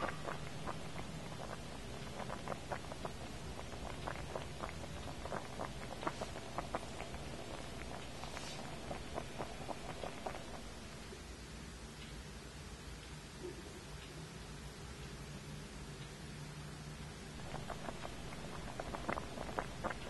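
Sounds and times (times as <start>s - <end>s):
broth simmering with bubbling pops: 0.0s - 11.3s, 17.3s - 20.0s.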